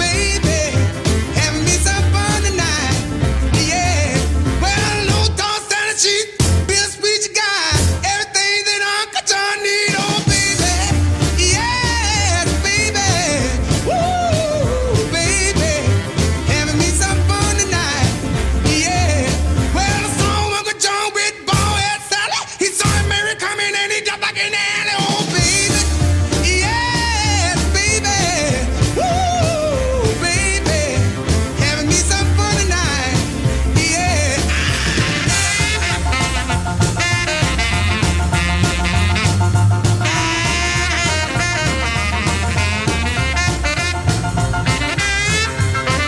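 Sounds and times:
song with singer over bass beat: 0.0s - 36.3s
drums: 0.0s - 46.0s.

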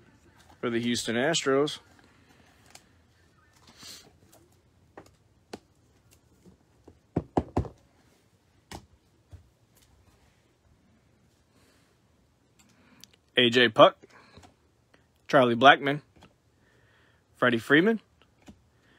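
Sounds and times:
card holders knocking on table: 7.1s - 7.8s.

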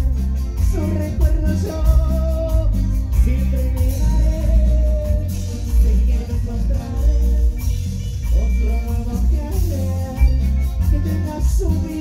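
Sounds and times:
live latin dance band: 0.0s - 12.0s
man singing into a microphone: 0.0s - 12.0s.

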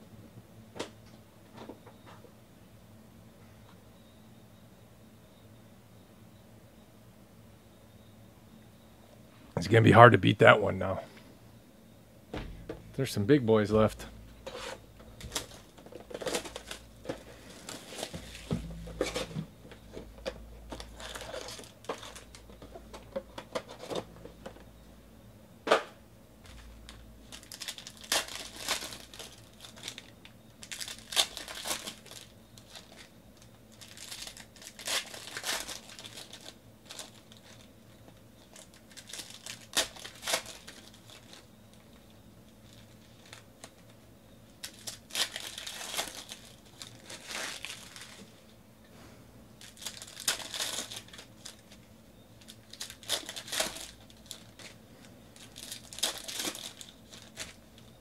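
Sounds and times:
foil wrappers tearing and crinkling: 13.8s - 19.3s, 20.7s - 22.7s, 26.6s - 37.7s, 38.4s - 43.9s, 44.6s - 48.4s, 49.6s - 54.8s, 55.4s - 58.0s.

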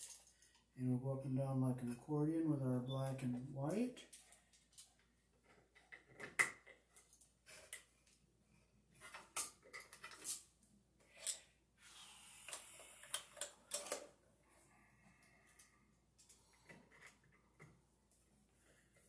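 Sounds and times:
small clicks and knocks: 4.1s - 8.2s, 9.0s - 11.5s.

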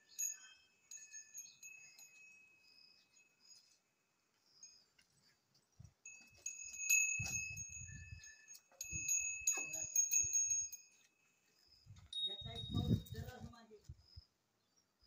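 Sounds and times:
small metal bells jingling: 0.0s - 13.8s.

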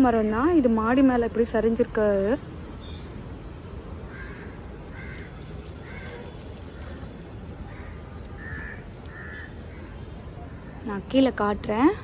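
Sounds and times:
crow cawing: 4.1s - 10.3s.

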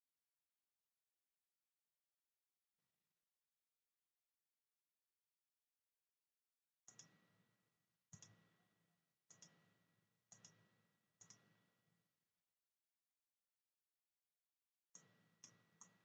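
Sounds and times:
computer mouse clicks: 6.9s - 7.2s, 9.3s - 9.7s, 10.3s - 11.5s.

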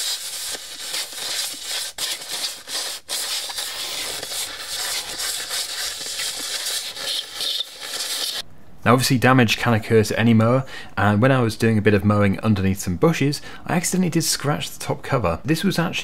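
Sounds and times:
compressed air blow gun hissing: 0.0s - 8.4s.

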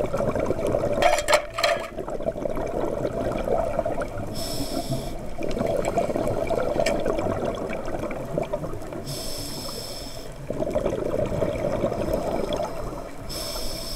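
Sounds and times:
bubbling exhaled air: 1.9s - 13.9s
regulator hissing inhalation: 4.3s - 5.3s, 9.0s - 10.4s, 12.2s - 13.9s.

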